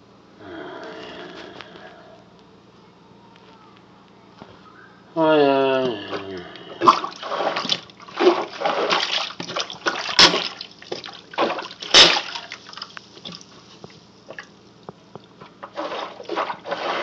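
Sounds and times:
plunger sloshing in sink water: 6.8 - 13.4, 15.5 - 17.0
water drips and splashes: 6.9 - 16.4.

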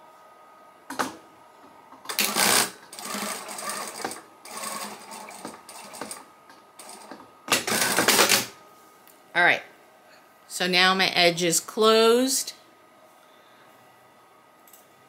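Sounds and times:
sewing machine stitching: 2.1 - 6.2, 6.8 - 8.5.

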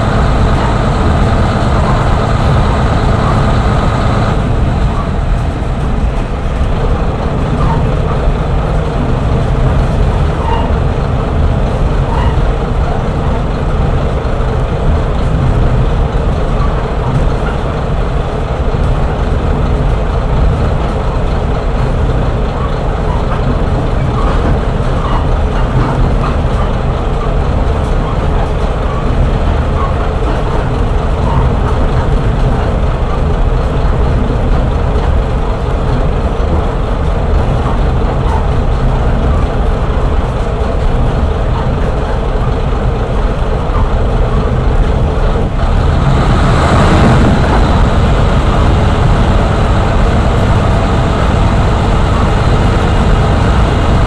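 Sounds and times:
diesel railcar running on track: 0.0 - 54.0
loud rushing swell: 45.5 - 54.0.

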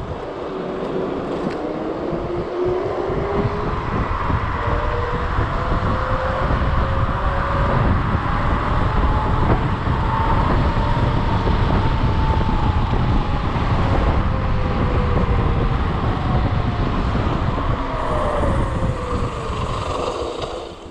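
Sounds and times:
wind rushing over microphone: 0.0 - 20.9
electric motor whine: 4.8 - 20.9.

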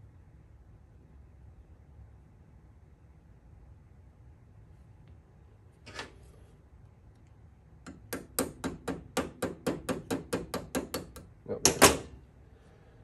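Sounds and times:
hard knocks: 7.9 - 12.1.

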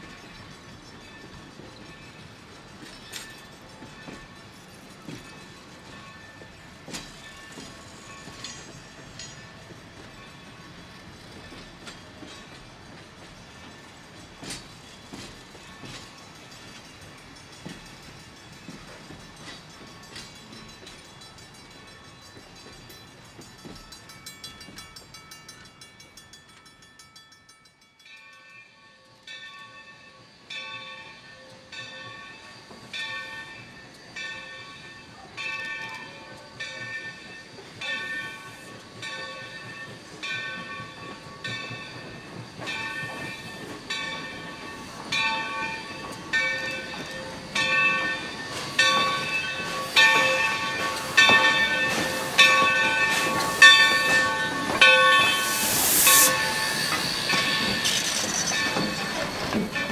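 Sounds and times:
locomotive bell ringing: 0.0 - 59.9
steam hissing: 29.8 - 59.9.

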